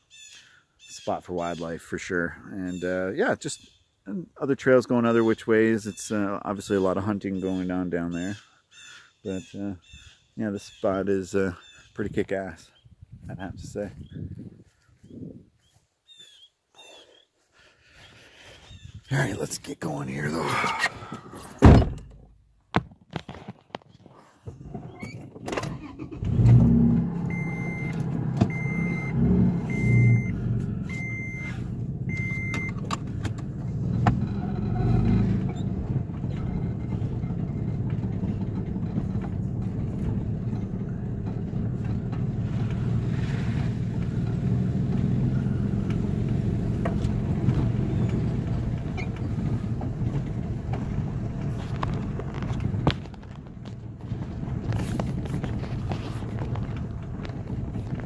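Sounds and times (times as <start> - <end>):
cabin and road noise: 0.0 - 58.0
car engine starting and running: 24.5 - 58.0
dashboard warning chime beeping: 27.2 - 32.8.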